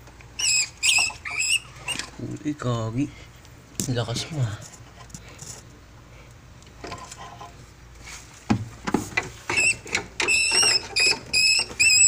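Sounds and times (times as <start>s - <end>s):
rat squealing: 0.4s - 2.1s, 9.5s - 12.0s.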